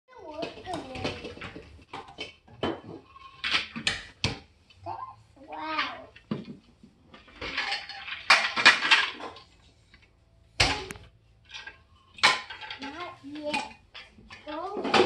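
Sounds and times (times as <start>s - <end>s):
plastic toy rings clattering: 7.1s - 9.5s, 10.9s - 15.0s.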